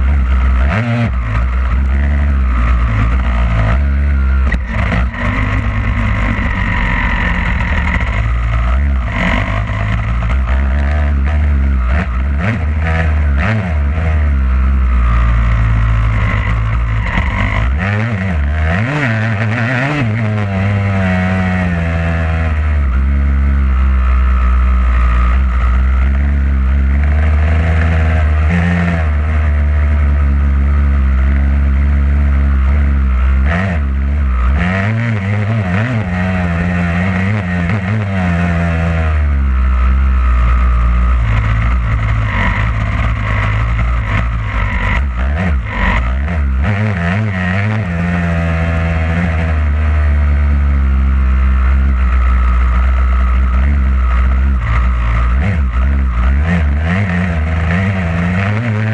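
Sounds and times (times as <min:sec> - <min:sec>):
motocross bike engine revving: 0:00.0 - 0:58.9.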